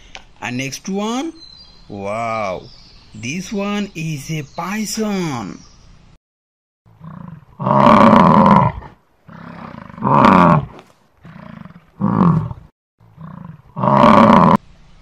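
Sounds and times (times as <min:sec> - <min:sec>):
bison bellowing: 0:07.0 - 0:14.6.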